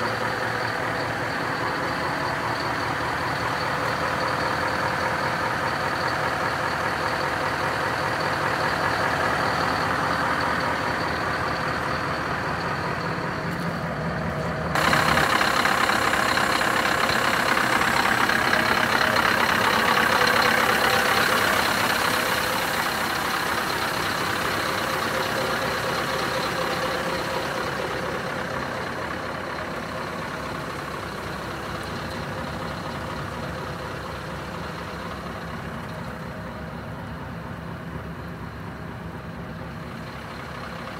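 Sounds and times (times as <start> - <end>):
truck diesel engine idling: 0.0 - 40.9.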